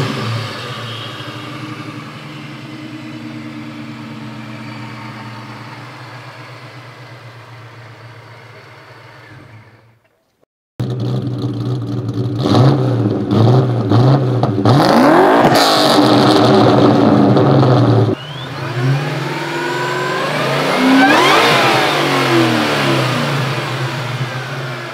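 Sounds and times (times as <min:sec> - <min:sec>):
car engine revving: 0:00.0 - 0:09.8, 0:10.8 - 0:24.9
car engine idling: 0:00.0 - 0:10.0, 0:16.3 - 0:24.9.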